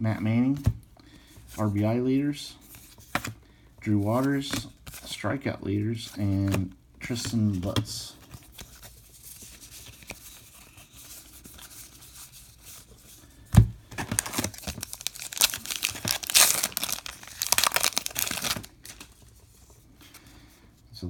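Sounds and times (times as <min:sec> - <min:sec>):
rustling of cards: 0:01.4 - 0:20.5
wrapper crinkling and tearing: 0:14.0 - 0:19.2.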